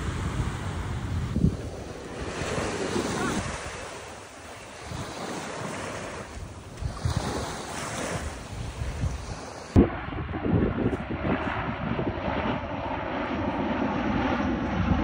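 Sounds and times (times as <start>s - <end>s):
small waves washing ashore: 0.0s - 9.8s
wind gusting on microphone: 0.0s - 15.0s.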